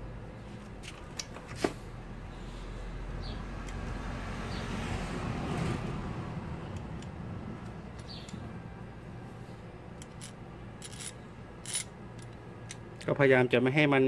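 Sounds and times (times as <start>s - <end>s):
vehicle passing by: 1.7s - 9.9s.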